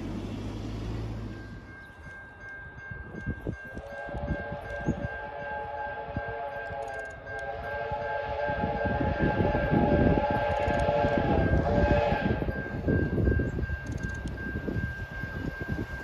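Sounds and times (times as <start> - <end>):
low train rumble: 0.0 - 16.0
train whistle: 3.8 - 12.8.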